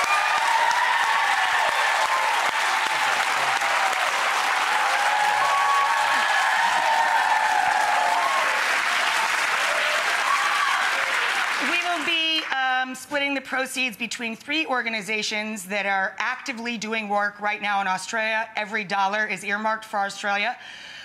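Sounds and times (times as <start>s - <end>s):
cheers and whoops: 0.0s - 11.6s
audience clapping: 0.0s - 12.8s.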